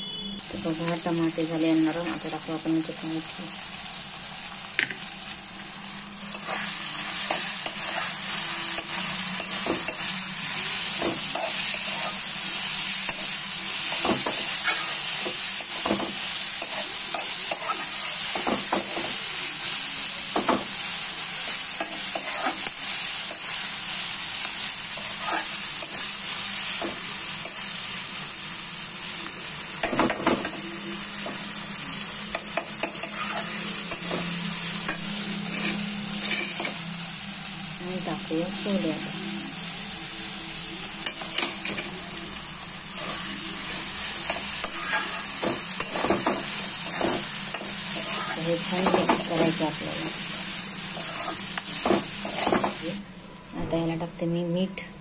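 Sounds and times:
vegetables sizzling in a pan: 0:00.1 - 0:53.0
metal spoon scraping a pan: 0:06.3 - 0:19.3, 0:21.8 - 0:23.6, 0:24.4 - 0:26.1, 0:32.3 - 0:36.8, 0:41.0 - 0:42.0, 0:43.0 - 0:49.5, 0:50.9 - 0:52.8.

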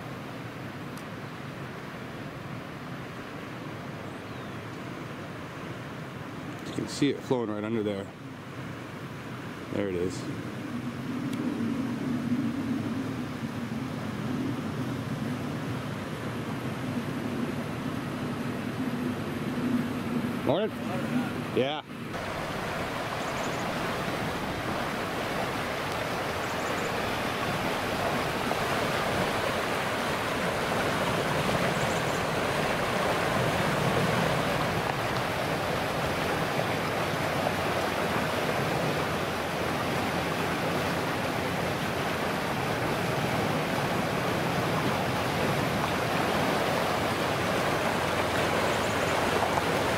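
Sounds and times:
floodwater rushing: 0:13.3 - 0:49.9.

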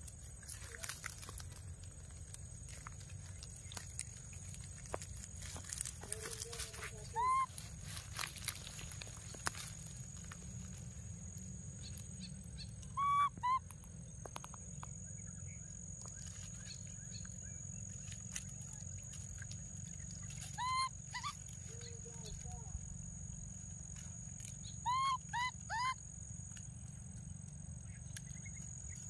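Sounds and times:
dry leaves rustling: 0:00.0 - 0:12.8, 0:16.0 - 0:24.8
baby monkey crying: 0:07.0 - 0:07.6, 0:12.9 - 0:13.7, 0:20.4 - 0:21.5, 0:24.8 - 0:26.0.

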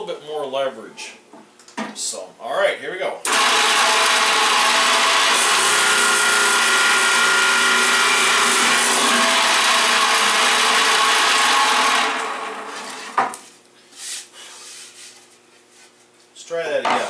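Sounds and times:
boring machine whirring: 0:03.2 - 0:13.2.

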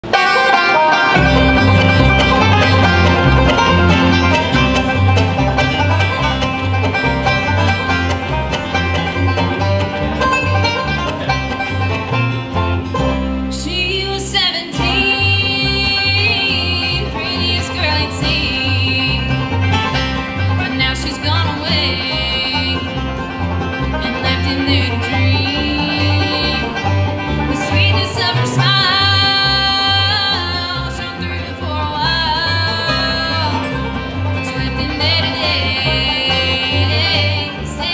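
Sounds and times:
acoustic guitar strumming: 0:00.0 - 0:37.9
banjo picking: 0:00.0 - 0:37.9
mandolin strumming: 0:00.0 - 0:37.9
upright bass walking line: 0:00.0 - 0:37.9
woman singing: 0:13.5 - 0:19.6, 0:20.6 - 0:23.0, 0:24.0 - 0:26.8, 0:27.4 - 0:37.9.

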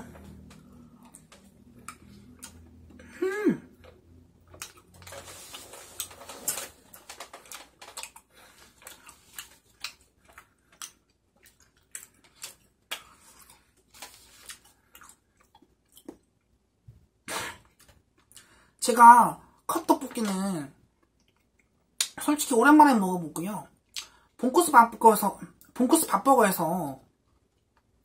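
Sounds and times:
person chewing: 0:00.1 - 0:16.6, 0:20.8 - 0:22.2, 0:23.8 - 0:24.3
person humming mm: 0:03.0 - 0:03.8.

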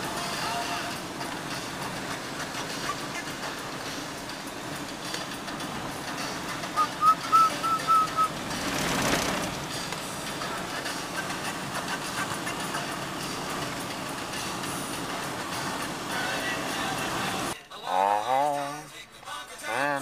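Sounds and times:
car road noise: 0:00.0 - 0:17.6
short high beeps: 0:06.8 - 0:08.3.

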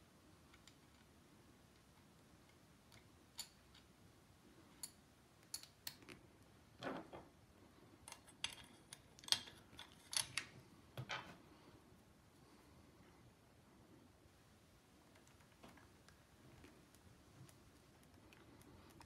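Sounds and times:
small metal parts clicking: 0:01.8 - 0:03.9, 0:04.8 - 0:06.1, 0:08.1 - 0:10.5.

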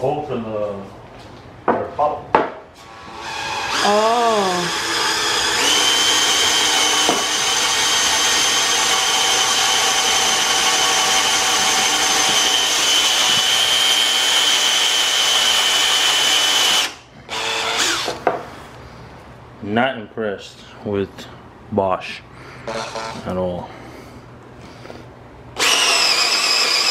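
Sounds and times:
cordless drill boring into wood: 0:02.8 - 0:18.2, 0:25.6 - 0:26.9.

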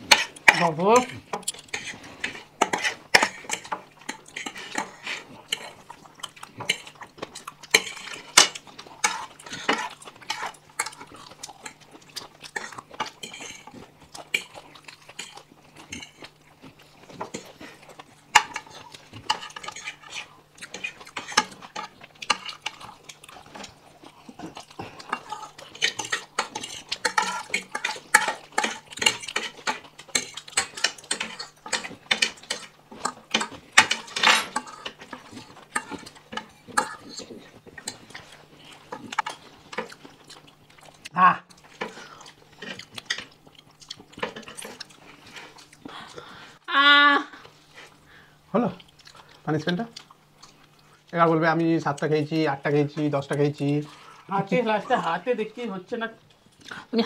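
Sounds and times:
cutlery clinking on plates: 0:25.1 - 0:38.0.

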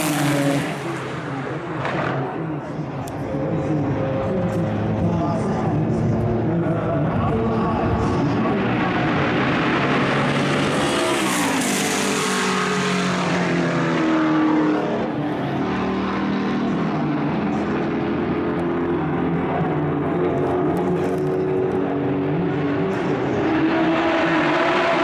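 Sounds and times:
racing car passing by: 0:00.0 - 0:02.7, 0:08.0 - 0:18.1, 0:20.7 - 0:25.0
racing car engines: 0:00.0 - 0:25.0.

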